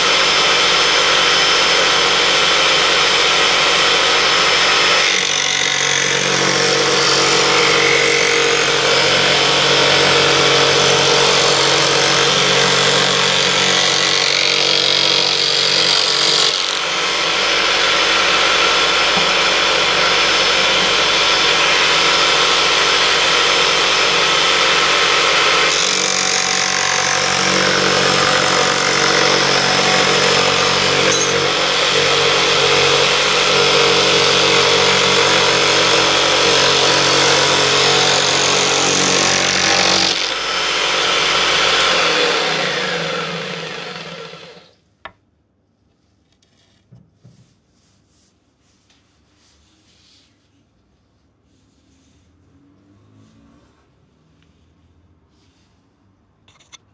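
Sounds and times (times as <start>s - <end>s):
jigsaw cutting wood: 0.0s - 44.8s.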